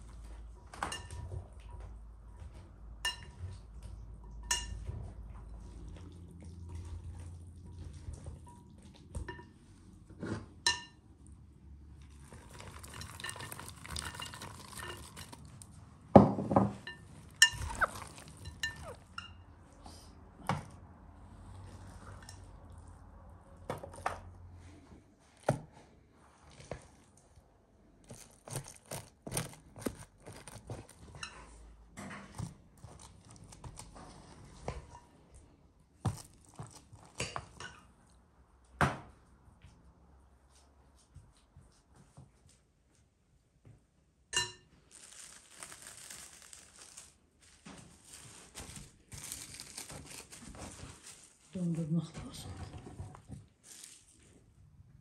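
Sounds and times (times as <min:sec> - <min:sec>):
spoon scraping a glass bowl: 0:16.9 - 0:19.4.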